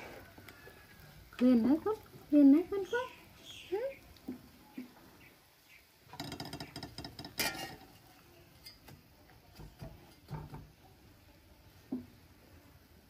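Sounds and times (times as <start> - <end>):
metal spatula scraping a pan: 6.1 - 8.9.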